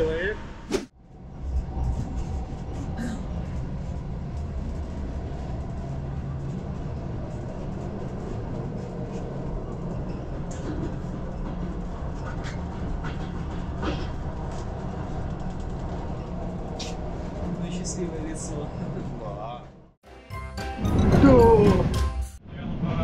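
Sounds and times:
train rumbling on rails: 0:00.0 - 0:20.0
faint clicks and squeaks: 0:03.4 - 0:19.6.

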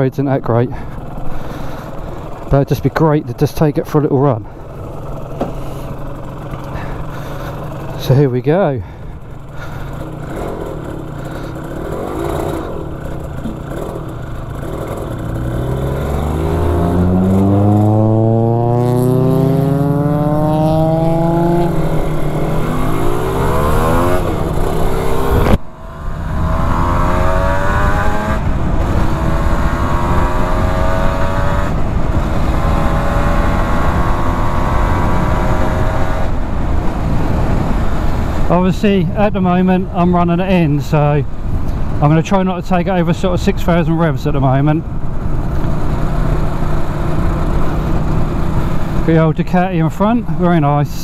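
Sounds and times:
motorcycle accelerating through gears: 0:04.3 - 0:08.2, 0:08.8 - 0:38.7, 0:43.7 - 0:50.7.

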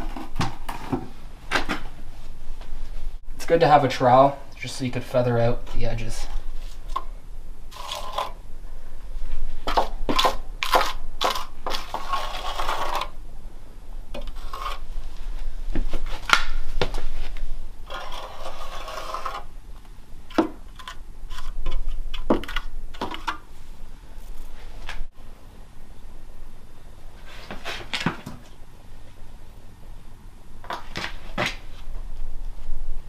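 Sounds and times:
steel trowel scraping concrete: 0:07.7 - 0:08.4, 0:09.7 - 0:13.2, 0:14.3 - 0:14.9, 0:17.8 - 0:19.5.

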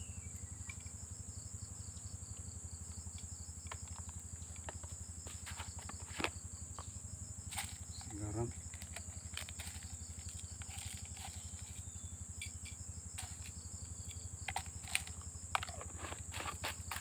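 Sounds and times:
crickets chirping: 0:00.0 - 0:17.0
plastic container handled: 0:03.7 - 0:06.4, 0:07.5 - 0:11.9, 0:13.2 - 0:17.0.

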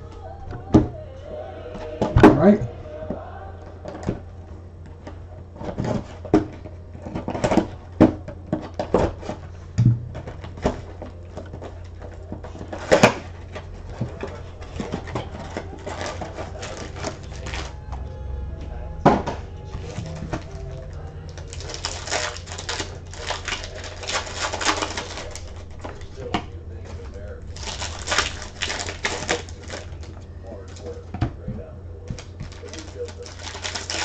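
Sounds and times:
steady low hum: 0:00.0 - 0:34.0
wrapping crinkling: 0:10.2 - 0:17.8, 0:19.7 - 0:31.1, 0:32.0 - 0:34.0.

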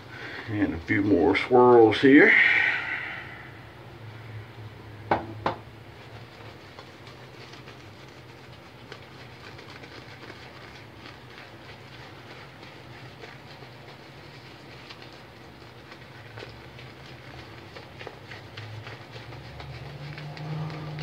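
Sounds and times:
shaving brush scratching on face: 0:00.0 - 0:02.4, 0:05.8 - 0:21.0
sharp knocks: 0:05.1 - 0:05.6.

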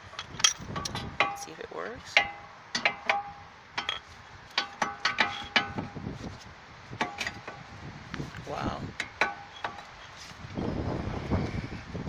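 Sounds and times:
metallic clinks and knocks: 0:00.1 - 0:01.5, 0:02.2 - 0:06.0.

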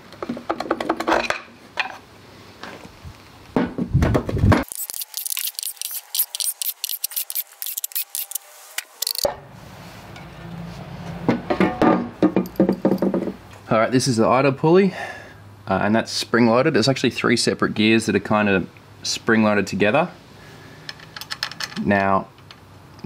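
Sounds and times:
rapid thin clicking: 0:04.6 - 0:09.3.

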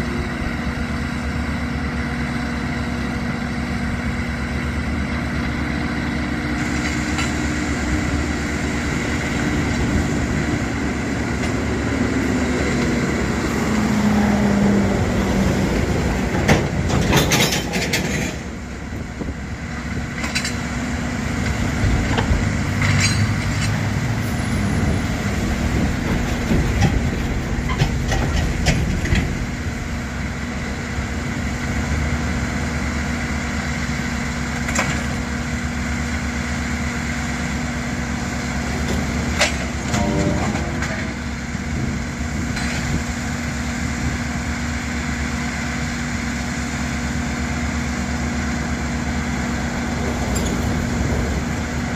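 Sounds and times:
diesel engines running: 0:00.0 - 0:51.9
metal rail clanking: 0:16.1 - 0:18.6, 0:22.1 - 0:24.0.

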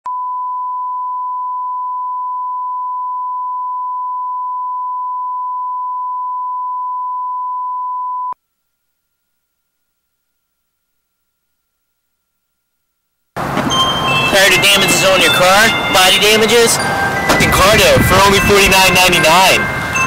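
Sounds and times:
pure test tone: 0:00.1 - 0:08.4.

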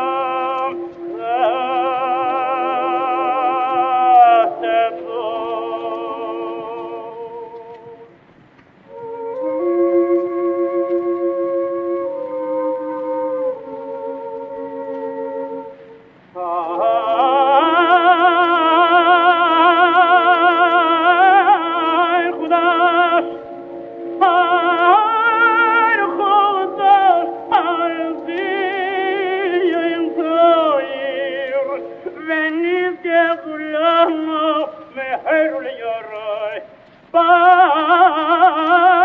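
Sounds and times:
sustained accompanying tones: 0:08.8 - 0:39.0
man chanting operatically: 0:26.2 - 0:36.6.

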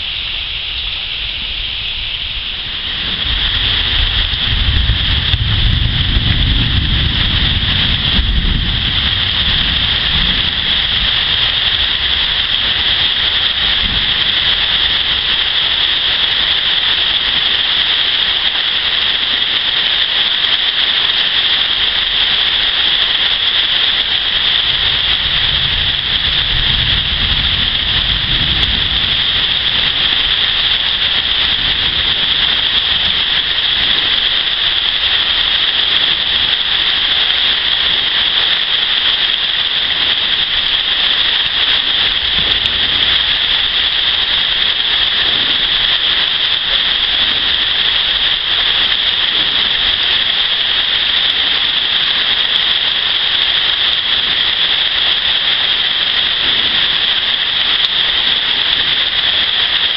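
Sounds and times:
heavy rain on water: 0:00.0 - 0:59.9
low thunder rumbles: 0:02.2 - 0:15.3, 0:24.6 - 0:34.2.

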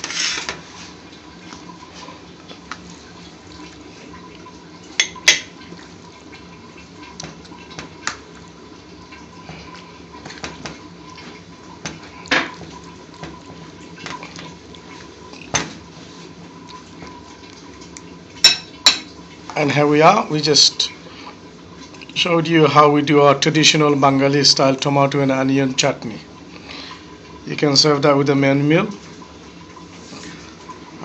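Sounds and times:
low background hum: 0:00.0 - 0:31.0
ceramic dishes clinking: 0:18.4 - 0:19.1.

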